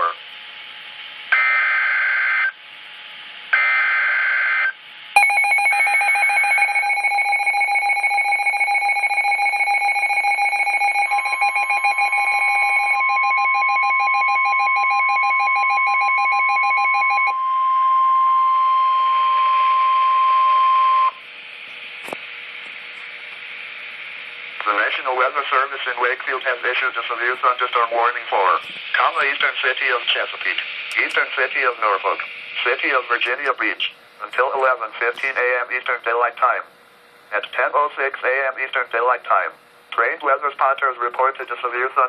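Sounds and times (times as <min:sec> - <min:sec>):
steady warning alarm tone: 0:03.6 - 0:21.3
warbling data tones: 0:05.2 - 0:17.3
rapid alarm beeping: 0:05.2 - 0:21.2.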